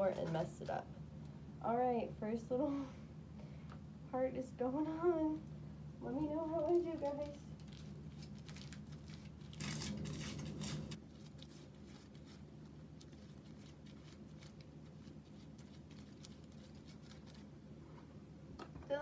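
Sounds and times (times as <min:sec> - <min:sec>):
hair foil crinkling: 0:00.0 - 0:00.8, 0:06.4 - 0:17.5
low steady hum: 0:00.0 - 0:19.0.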